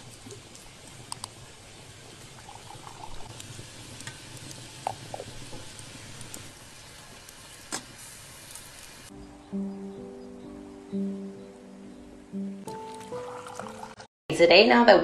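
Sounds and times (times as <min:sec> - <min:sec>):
tea pouring and trickling: 0:00.1 - 0:07.3, 0:12.7 - 0:14.1.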